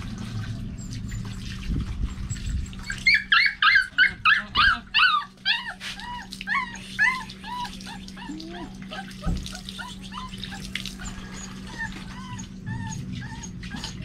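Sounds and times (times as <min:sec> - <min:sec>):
water splashing in a bucket: 0:00.0 - 0:03.6, 0:05.5 - 0:12.5
puppy whimpering: 0:00.7 - 0:14.0.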